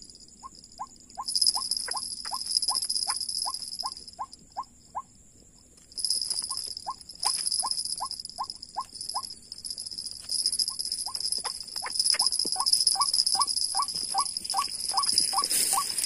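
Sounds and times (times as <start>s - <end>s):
high insect drone: 0.0s - 16.0s
waterhen calling: 11.8s - 16.0s.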